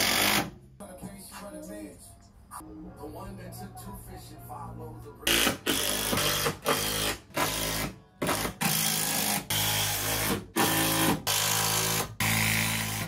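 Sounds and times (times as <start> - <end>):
cordless drill driving screws: 5.3 - 13.0.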